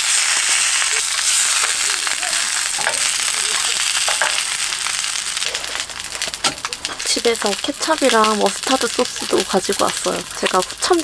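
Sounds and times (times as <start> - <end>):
sausages sizzling in a pan: 0.0 - 11.0.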